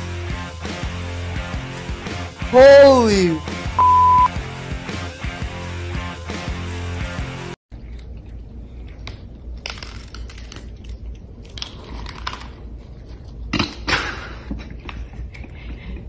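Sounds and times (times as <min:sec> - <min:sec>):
cats crunching dry kibble: 0:07.8 - 0:13.8.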